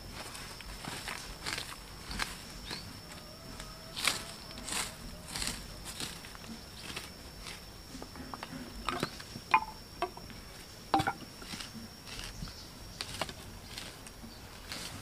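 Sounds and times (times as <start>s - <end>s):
bamboo sticks clacking: 8.3s - 10.3s, 10.9s - 12.3s
hoe scraping dry soil: 10.4s - 15.0s.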